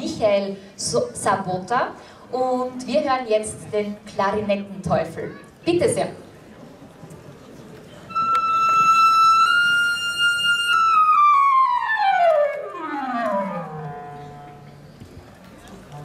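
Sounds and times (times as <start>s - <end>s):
clarinet glissando: 8.1s - 15.0s.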